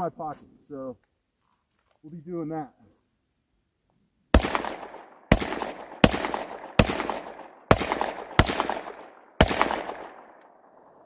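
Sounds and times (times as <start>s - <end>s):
rolling echo of gunshots: 4.3s - 11.0s
shotgun shots: 4.3s - 11.0s.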